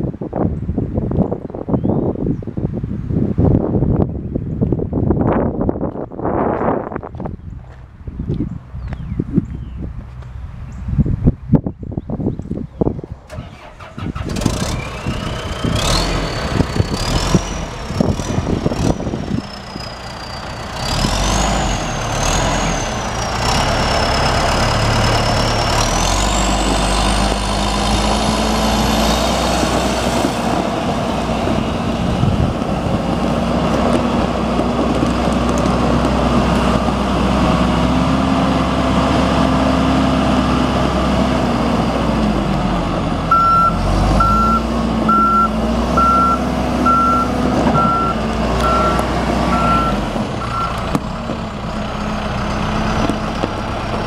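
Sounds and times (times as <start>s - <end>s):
diesel engine running: 12.9s - 54.0s
reverse alarm beeping: 43.3s - 50.8s.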